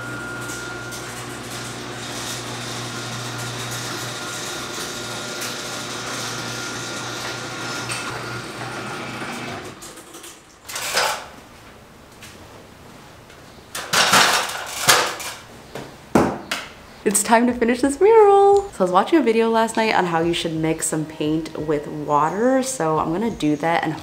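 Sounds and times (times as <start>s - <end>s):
steady machine hum: 0.0s - 9.8s.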